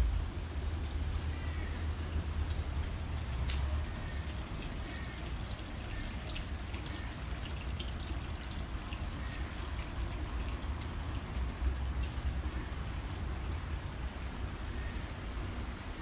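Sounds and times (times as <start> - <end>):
low rumble: 0.0 - 1.2
water trickling and splashing: 0.0 - 16.0.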